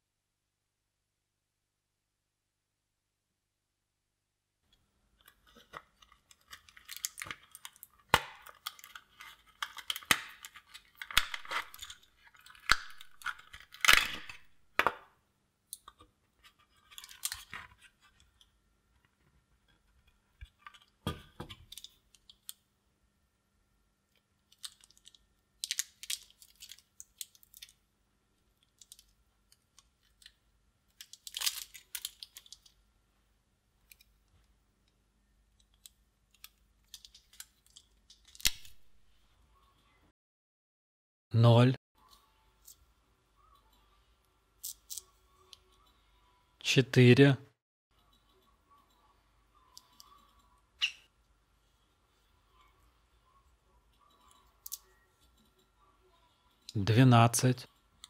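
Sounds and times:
plastic casing crackling and scraping: 5.2 - 14.9, 15.8 - 18.5, 24.5 - 27.8, 28.6 - 32.8.

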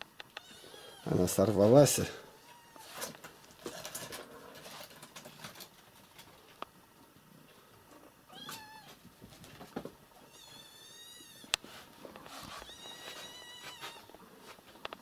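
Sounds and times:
cat meowing: 2.4 - 3.0, 8.3 - 9.0, 10.3 - 11.6, 12.6 - 14.1
faint rustling: 8.8 - 15.0.

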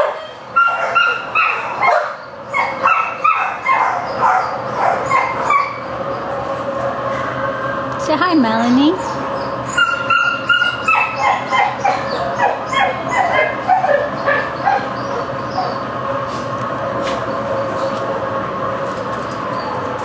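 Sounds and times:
dog yipping and whining: 0.0 - 5.9, 9.0 - 15.8.

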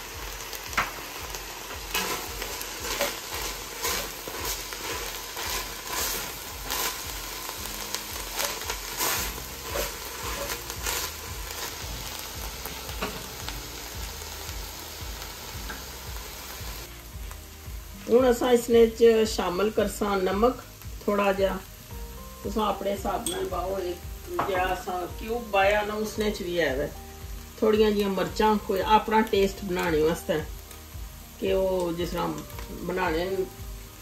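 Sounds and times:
meat sizzling in a pot: 0.0 - 34.0
wooden spoon scraping a pot: 8.4 - 11.2.

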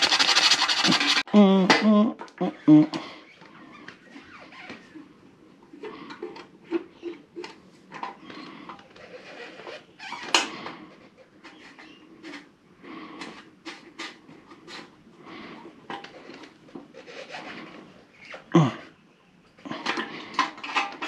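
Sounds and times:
tools and parts rattling: 0.0 - 1.2, 19.7 - 21.0.

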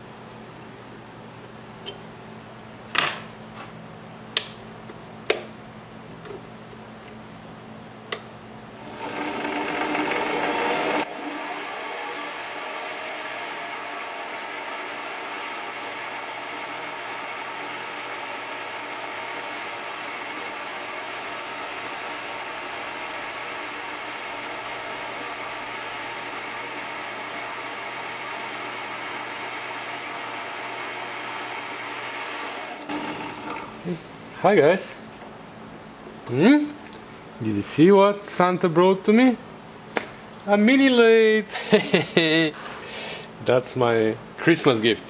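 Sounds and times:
lathe motor running: 8.8 - 33.8.

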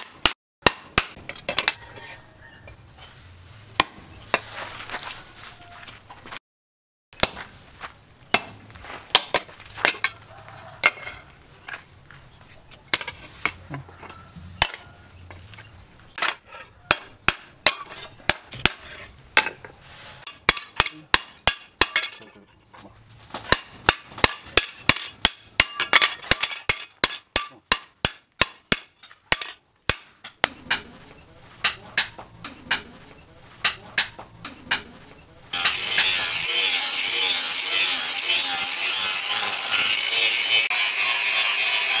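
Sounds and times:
hammer striking steel on anvil: 3.8 - 4.4, 8.3 - 10.1, 16.2 - 19.5, 20.3 - 22.4, 23.5 - 30.8, 35.6 - 42.0.

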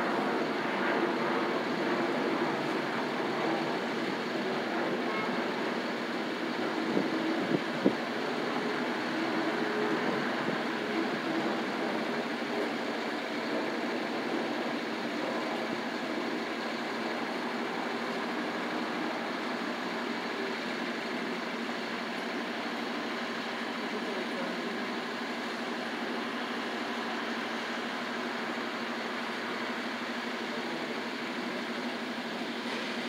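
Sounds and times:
traffic hiss and hum: 0.0 - 33.0.

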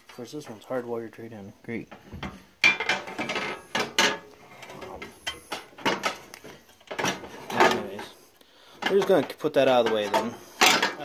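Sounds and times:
clicks knocks and metal rattles: 1.8 - 8.2, 8.8 - 11.0.

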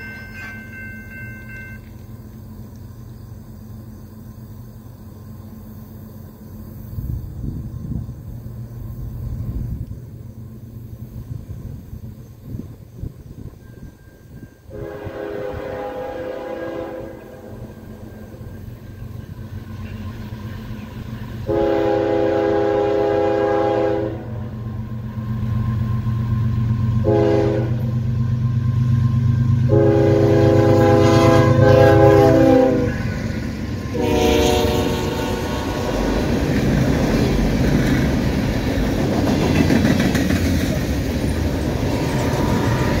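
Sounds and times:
train wheels clattering on rails: 0.0 - 5.0, 17.1 - 22.1, 24.4 - 43.0
locomotive engine drone: 0.0 - 43.0
locomotive horn blasts: 14.7 - 17.8, 21.4 - 24.4, 27.0 - 27.9, 29.6 - 33.1, 33.8 - 36.3, 41.9 - 43.0.

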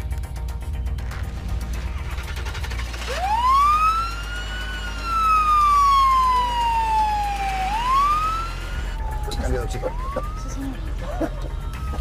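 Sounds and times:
ambulance siren wailing: 3.0 - 12.0.

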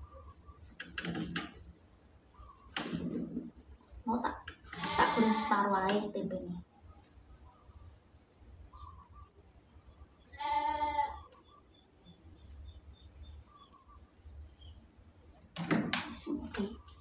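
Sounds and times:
faint high bird chirps: 0.0 - 17.0
goat bleating: 4.8 - 5.7, 10.4 - 11.2.

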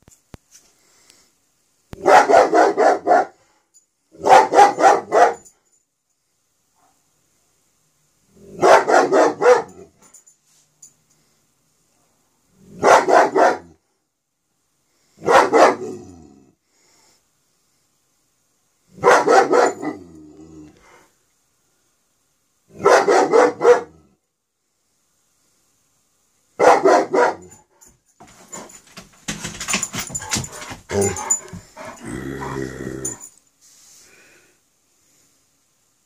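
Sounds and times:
dog barking: 2.0 - 3.4, 4.2 - 5.5, 6.8 - 7.0, 8.5 - 9.9, 12.7 - 13.8, 15.2 - 16.0, 19.0 - 20.1, 22.7 - 24.0, 26.6 - 27.6.

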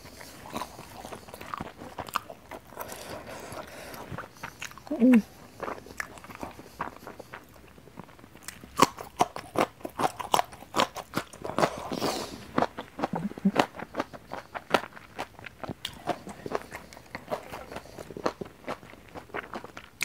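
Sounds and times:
chewing crunches: 0.0 - 20.0.

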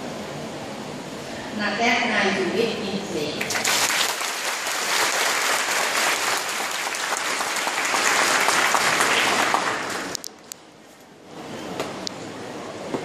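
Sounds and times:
audience applauding: 3.4 - 10.2.

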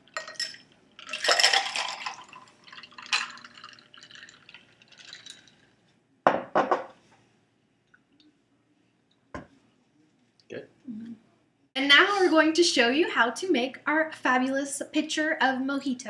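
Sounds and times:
glassware clinking: 0.1 - 4.4, 6.3 - 6.9
liquid pouring into a glass: 0.1 - 5.8.

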